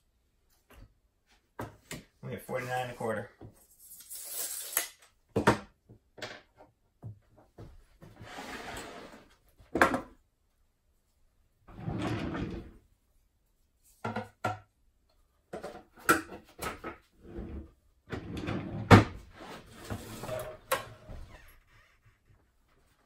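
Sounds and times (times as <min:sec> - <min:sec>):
plywood scraping on bench: 0:08.1 - 0:09.4, 0:17.2 - 0:20.9
wooden drawer sliding: 0:08.2 - 0:09.3, 0:11.7 - 0:12.8, 0:17.2 - 0:21.1.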